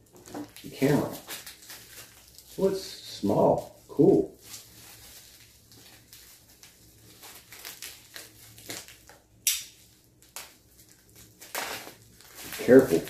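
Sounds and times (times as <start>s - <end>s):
bubble wrap crinkling: 0.0s - 13.0s
sharp snaps: 9.4s - 10.5s.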